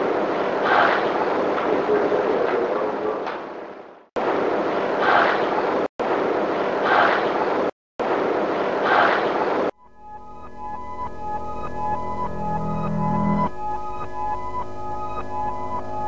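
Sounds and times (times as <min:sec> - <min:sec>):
synthesizer music: 0:09.8 - 0:16.0.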